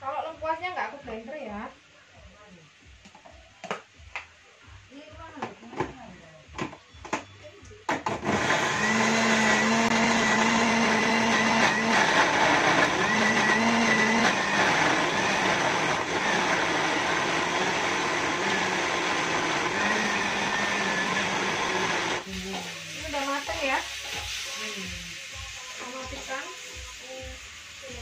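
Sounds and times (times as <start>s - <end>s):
electric blender running: 8.0s - 22.3s.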